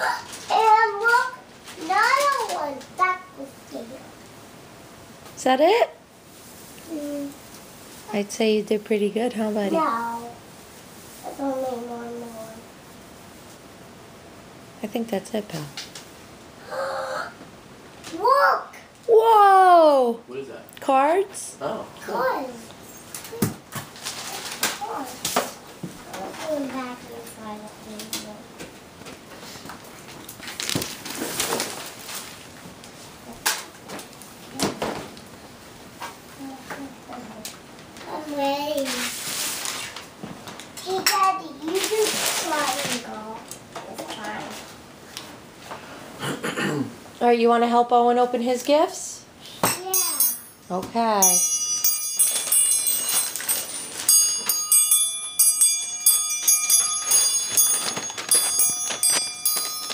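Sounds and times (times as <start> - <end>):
wrapping paper rustling: 23.8 - 25.2, 29.4 - 33.0, 37.8 - 40.8, 41.6 - 43.4, 52.2 - 54.4, 56.4 - 59.9
jingle bells shaking: 51.2 - 59.9.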